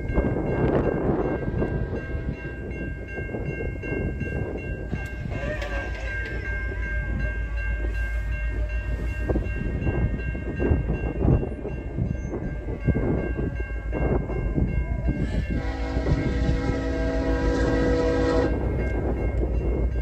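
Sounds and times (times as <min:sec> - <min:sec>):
level crossing bell ringing: 0:00.0 - 0:15.8.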